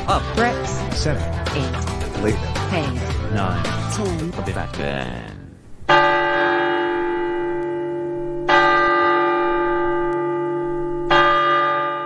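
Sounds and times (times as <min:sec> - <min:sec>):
large bell striking: 0:05.9 - 0:12.0.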